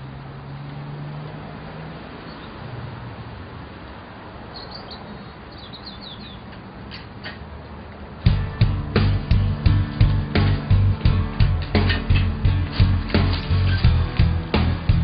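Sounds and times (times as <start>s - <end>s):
small birds chirping: 2.2s - 2.7s, 4.5s - 7.1s.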